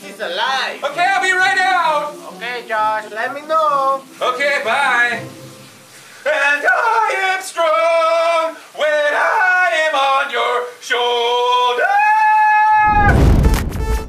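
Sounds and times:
man singing: 0:00.8 - 0:05.3, 0:06.2 - 0:12.0.

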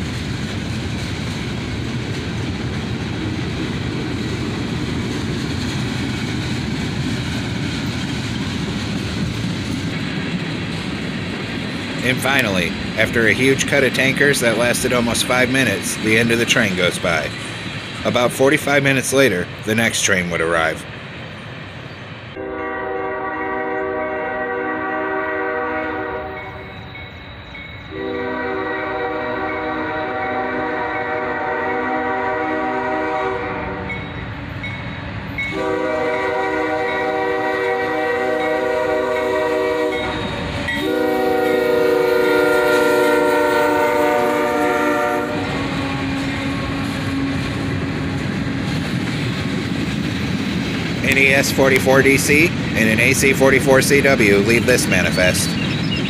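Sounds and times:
train rolling past: 0:00.0 - 0:56.0
train air horn blasts: 0:22.4 - 0:26.7, 0:27.9 - 0:34.0, 0:35.5 - 0:48.2.

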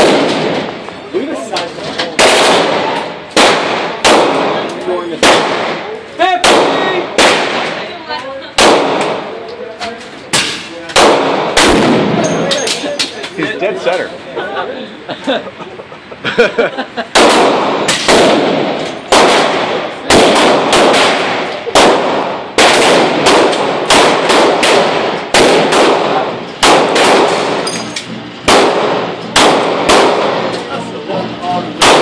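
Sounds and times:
pistol shots echoing indoors: 0:00.0 - 0:00.7, 0:02.2 - 0:05.8, 0:06.4 - 0:07.8, 0:08.6 - 0:09.3, 0:10.4 - 0:12.2, 0:17.2 - 0:27.8, 0:28.4 - 0:30.6, 0:31.8 - 0:32.0.

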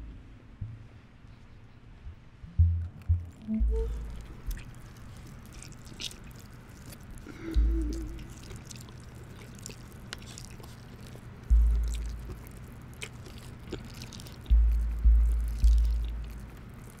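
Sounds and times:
deep low drum beats: 0:00.0 - 0:01.0, 0:02.1 - 0:04.7, 0:07.5 - 0:08.4, 0:11.5 - 0:12.4, 0:14.4 - 0:16.6
wet chewing: 0:03.0 - 0:17.0.

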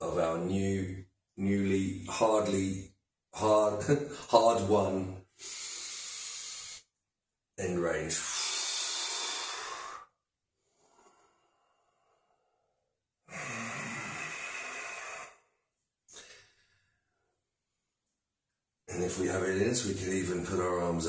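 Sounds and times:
man breathing heavily: 0:05.3 - 0:06.9, 0:08.2 - 0:12.6, 0:13.3 - 0:16.8.

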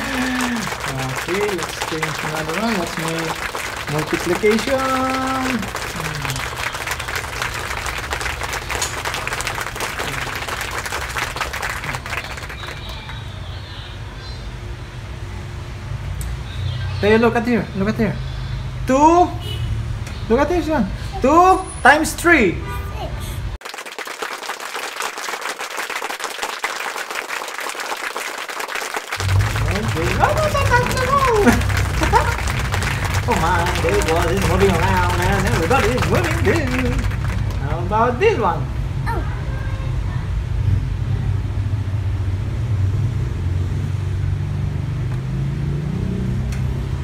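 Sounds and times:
many hands clapping: 0:00.0 - 0:13.6, 0:23.6 - 0:38.0.

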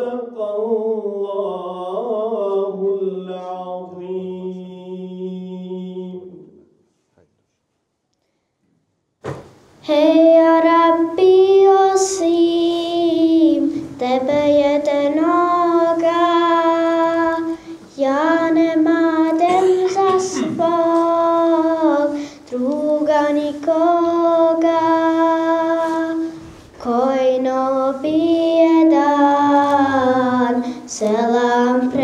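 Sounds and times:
high voice singing melismatic melody: 0:09.8 - 0:32.0.

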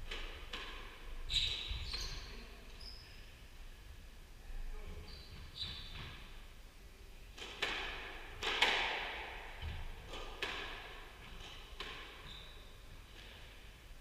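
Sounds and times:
squash ball struck by rackets: 0:07.4 - 0:12.2.

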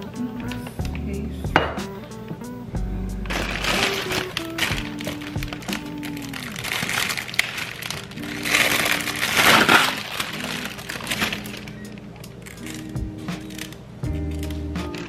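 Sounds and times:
background music: 0:00.0 - 0:15.0
cellophane rustling: 0:03.2 - 0:15.0.

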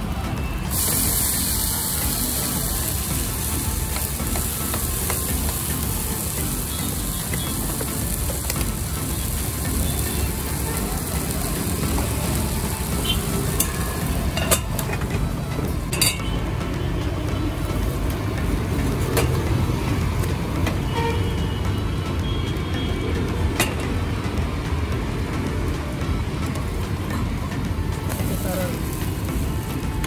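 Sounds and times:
batter sizzling in oil: 0:00.3 - 0:16.4, 0:28.0 - 0:30.0.

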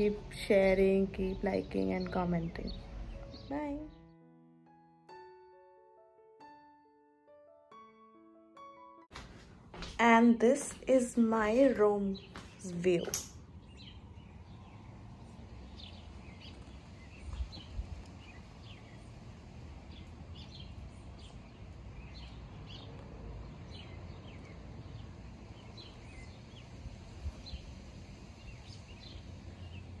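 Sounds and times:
birds chirping: 0:00.0 - 0:04.2, 0:10.4 - 0:30.0
low outdoor rumble: 0:10.8 - 0:30.0.

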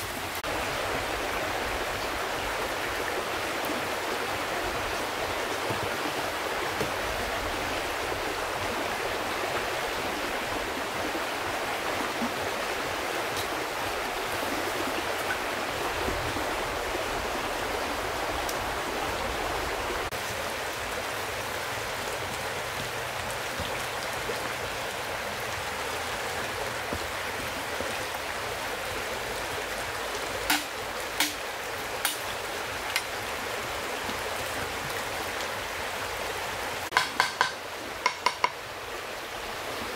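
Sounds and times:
flowing stream rushing: 0:00.0 - 0:39.9
sharp knocks: 0:36.9 - 0:38.6.

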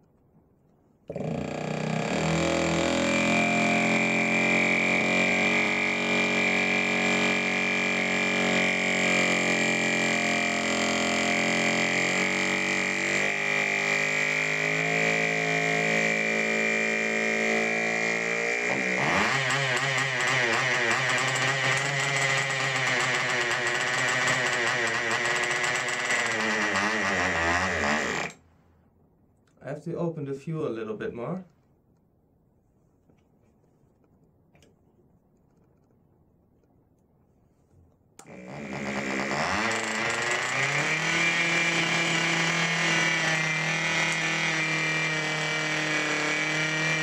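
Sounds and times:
model engine high whine: 0:01.6 - 0:28.4, 0:38.2 - 0:47.0.

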